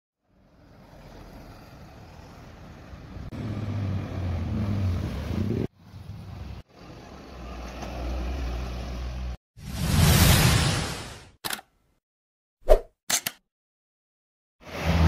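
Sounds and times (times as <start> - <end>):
trucks driving past: 0.2 - 9.4.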